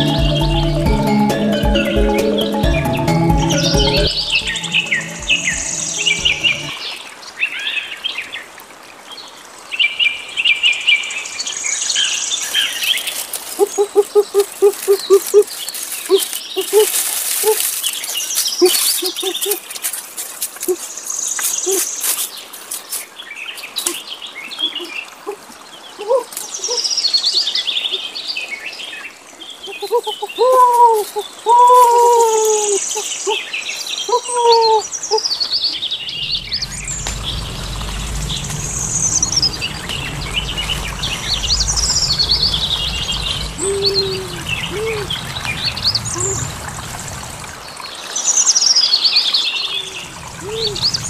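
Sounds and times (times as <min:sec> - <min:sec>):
forest birds chirping: 0:00.0 - 0:08.5, 0:09.1 - 0:51.0
lower arched bird calls: 0:12.5 - 0:19.9, 0:29.5 - 0:46.5
steady low rumble: 0:36.0 - 0:47.8, 0:50.0 - 0:51.0.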